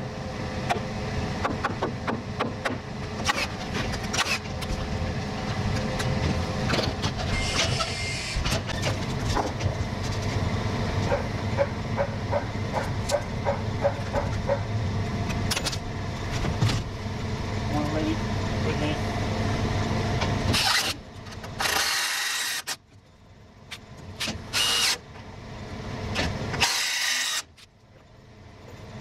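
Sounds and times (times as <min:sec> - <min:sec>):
low engine rumble: 0:08.4 - 0:21.6.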